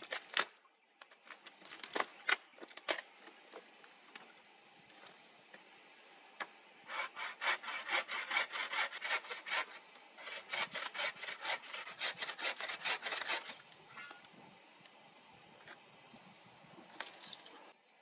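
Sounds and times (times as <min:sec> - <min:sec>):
hand saw cutting wood: 0:06.9 - 0:13.6.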